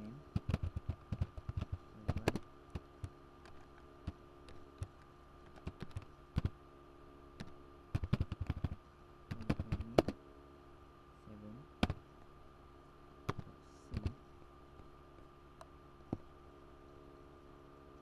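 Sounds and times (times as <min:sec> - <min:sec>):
faint steady hum: 0:00.0 - 0:18.0
typing on computer keyboard: 0:00.4 - 0:02.4, 0:05.5 - 0:06.5, 0:07.4 - 0:10.2.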